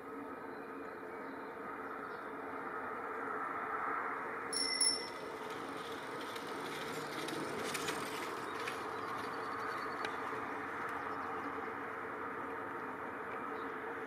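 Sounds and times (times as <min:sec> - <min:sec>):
distant hum: 0:04.6 - 0:07.0
faint clicks: 0:10.0 - 0:10.2.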